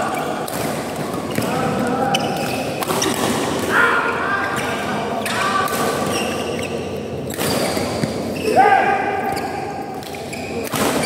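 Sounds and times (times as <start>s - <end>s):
shoes squeaking on court: 1.2s - 3.3s, 6.0s - 8.6s, 9.3s - 11.0s.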